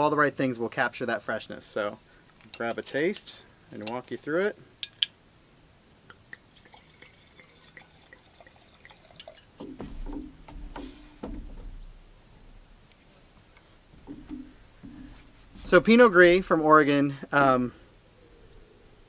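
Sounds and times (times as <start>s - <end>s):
wine pouring into a glass: 6.3s - 9.6s.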